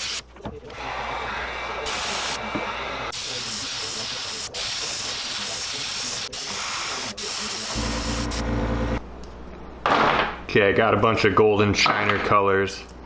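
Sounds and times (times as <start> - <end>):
airbrush spraying: 1.8 - 2.4, 3.1 - 8.4.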